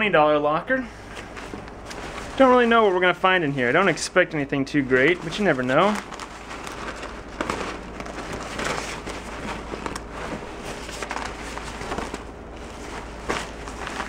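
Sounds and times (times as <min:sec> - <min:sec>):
leather bag rustling and scraping: 0:01.0 - 0:02.7, 0:04.9 - 0:14.0.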